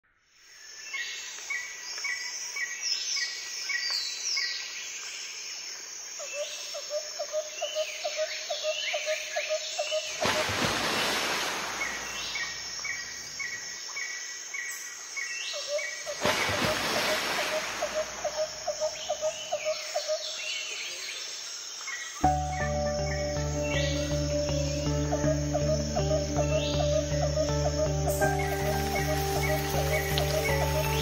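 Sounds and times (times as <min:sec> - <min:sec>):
birds chirping and whistling: 0:22.3 - 0:31.0.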